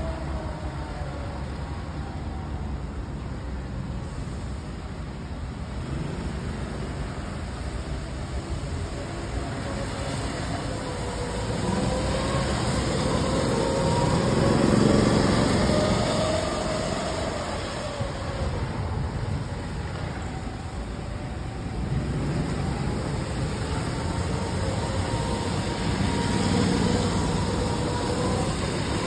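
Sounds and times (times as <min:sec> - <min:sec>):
go-kart engines: 0:00.0 - 0:29.0
go-kart passing close: 0:07.2 - 0:29.0.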